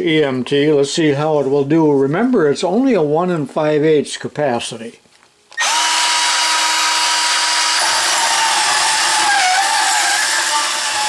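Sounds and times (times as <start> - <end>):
band saw cutting steel conduit: 5.6 - 11.0.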